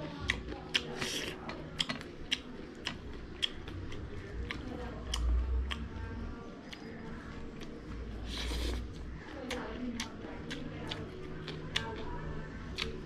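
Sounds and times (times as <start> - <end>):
person chewing with mouth clicks: 0.2 - 12.1, 12.7 - 13.0.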